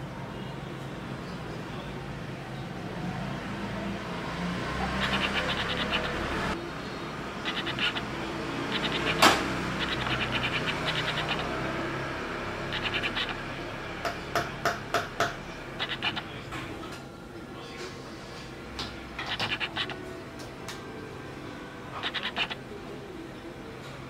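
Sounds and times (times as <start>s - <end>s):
rapid metal ticking: 5.0s - 6.5s, 7.4s - 8.1s, 8.7s - 11.8s, 12.7s - 13.5s.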